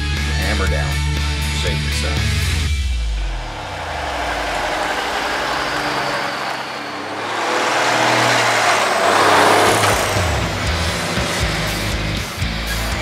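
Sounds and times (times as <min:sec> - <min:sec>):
diesel truck driving past: 0:03.0 - 0:13.0.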